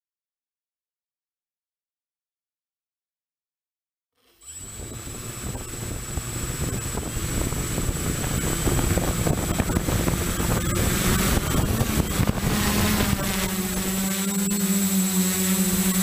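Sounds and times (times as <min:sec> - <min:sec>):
drone motors spinning: 0:04.2 - 0:16.0
high-pitched whine: 0:04.3 - 0:16.0
propeller wash on microphone: 0:04.5 - 0:16.0.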